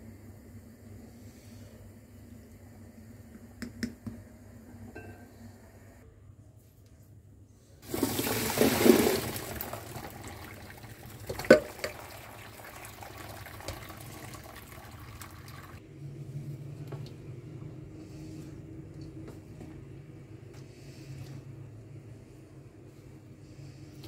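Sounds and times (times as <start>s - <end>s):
water pouring through colander: 7.8s - 15.8s.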